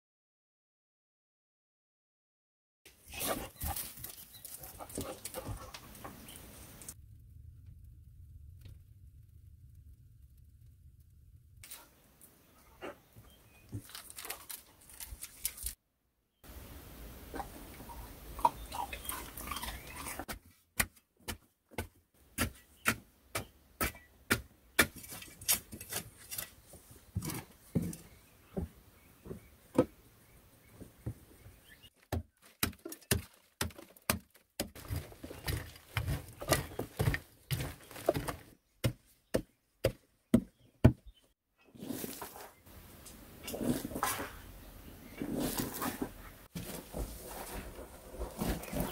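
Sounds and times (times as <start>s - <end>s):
pick striking clay soil: 20.3s - 26.6s.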